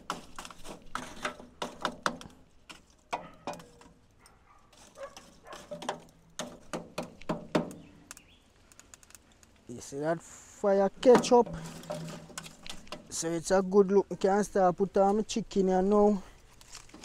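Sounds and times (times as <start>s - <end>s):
fire crackling and popping: 0.0s - 17.0s.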